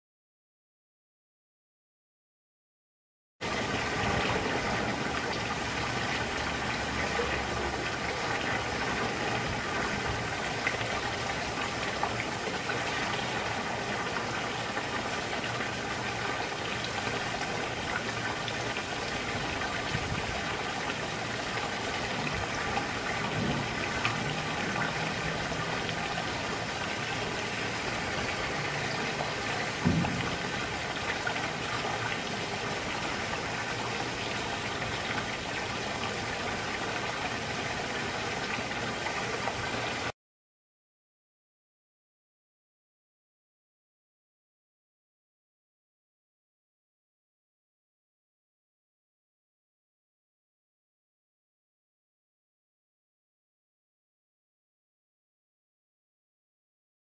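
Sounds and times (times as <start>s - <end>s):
waterfall spout pouring into pool: 3.4s - 40.1s
low thump: 23.3s - 23.8s, 29.8s - 30.7s.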